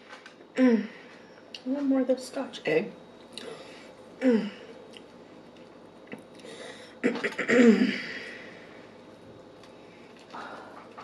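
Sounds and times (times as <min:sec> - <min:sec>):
woman clearing throat: 0:04.2 - 0:04.6, 0:07.0 - 0:08.2.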